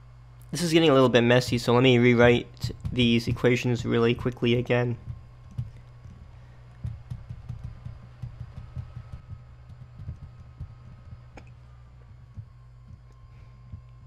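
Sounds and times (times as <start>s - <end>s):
low electrical hum: 0.0s - 14.0s
stylus tapping and scraping: 1.5s - 11.6s.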